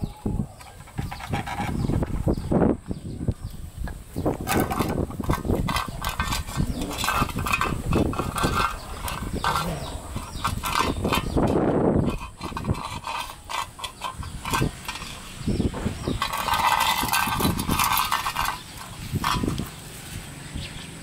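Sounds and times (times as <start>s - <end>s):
puppies eating from steel bowls: 4.4s - 11.5s, 12.1s - 19.9s.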